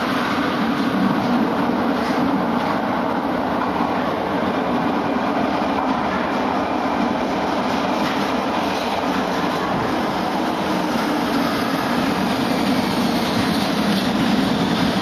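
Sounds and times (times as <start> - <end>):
subway train wheels rumbling: 0.0 - 15.0
train wheels clickety-clack: 0.0 - 15.0.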